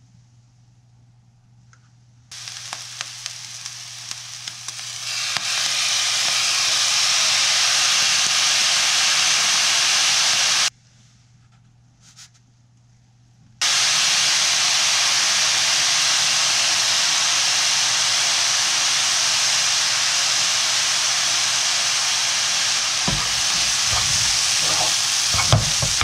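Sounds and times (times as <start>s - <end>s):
food sizzling in a wok: 2.3s - 10.7s, 13.6s - 26.0s.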